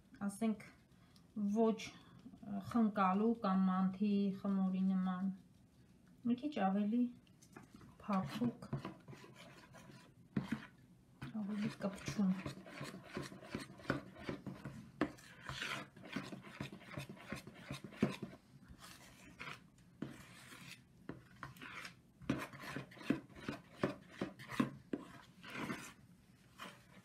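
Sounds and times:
spoon stirring dough in plastic bowl: 0.4 - 27.0.

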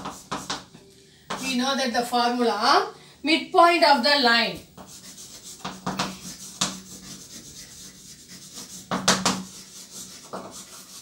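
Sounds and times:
chalk scratching on blackboard: 0.0 - 0.7, 4.6 - 11.0.

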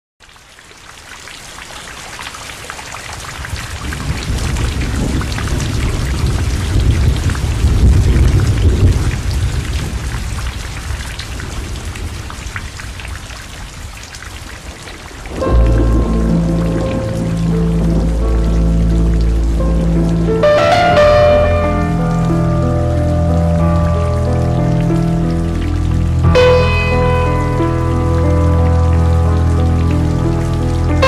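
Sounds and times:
rain patter: 0.2 - 31.0
rolling thunder: 3.5 - 12.8, 15.2 - 29.2.

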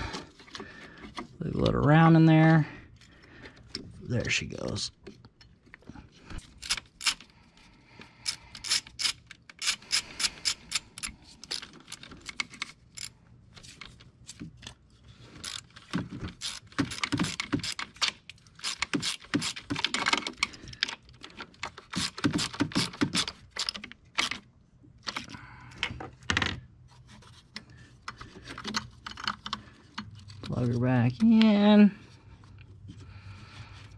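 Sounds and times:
socket ratchet clicking: 8.2 - 13.1, 16.4 - 19.9.

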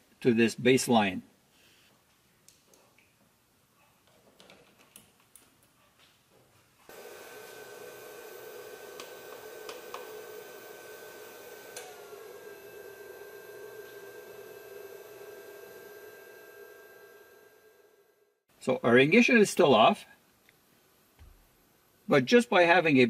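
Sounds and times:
battery charger humming: 6.9 - 18.4
charger clamps clicking: 11.7 - 12.2.

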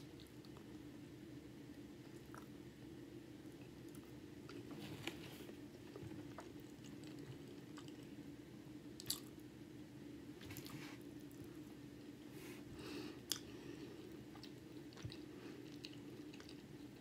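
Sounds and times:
steady low hum: 0.0 - 17.0
wet chewing mouth sounds: 14.2 - 17.0.

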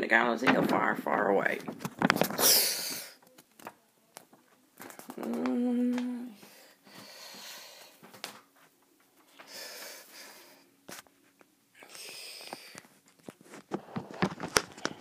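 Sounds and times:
person humming a note: 5.2 - 6.4.

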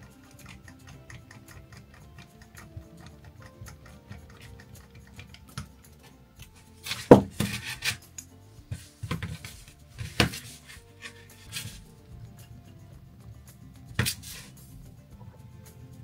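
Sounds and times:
small parts clicking and clattering: 0.0 - 15.2.

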